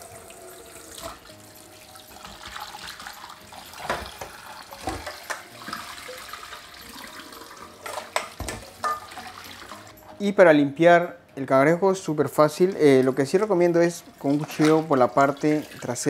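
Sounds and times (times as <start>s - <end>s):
tap running into steel bowl: 3.8s - 5.8s
knocks and splashes: 3.8s - 5.9s.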